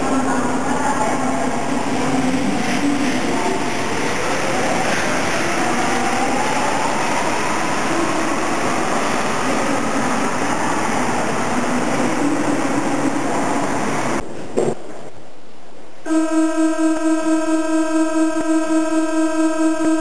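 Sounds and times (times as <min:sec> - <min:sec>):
train accelerating with motor whine: 0:01.4 - 0:14.2.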